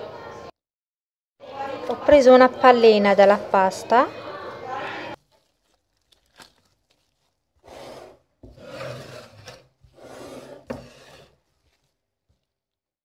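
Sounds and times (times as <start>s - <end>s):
gloved hands handling dough: 5.1s - 13.0s.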